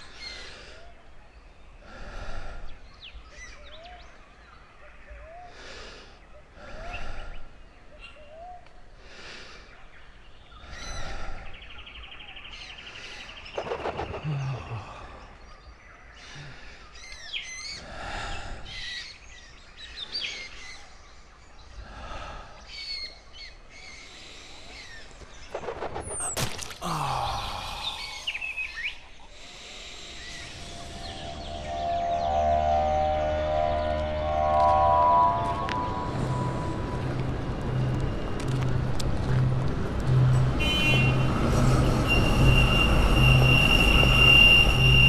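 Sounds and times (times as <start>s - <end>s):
birds chirping and whistling: 10.0s - 21.8s, 27.9s - 37.6s
sharp splat: 25.7s - 27.0s.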